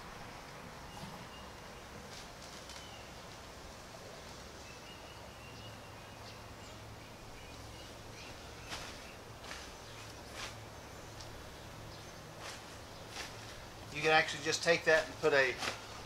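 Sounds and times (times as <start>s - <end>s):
outdoor background noise: 0.0s - 16.0s
tent fabric rustling: 8.6s - 10.7s, 12.4s - 16.0s.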